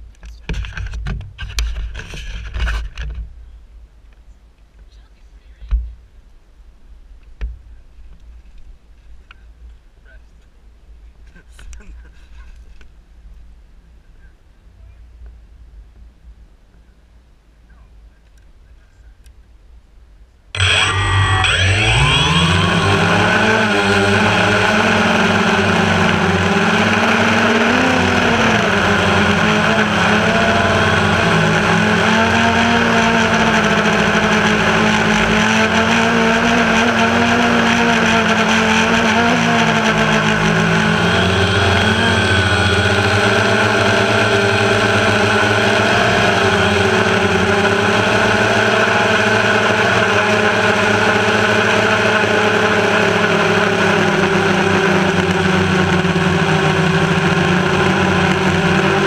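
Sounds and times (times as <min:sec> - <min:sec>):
drone motors whining: 0:20.6 - 0:59.0.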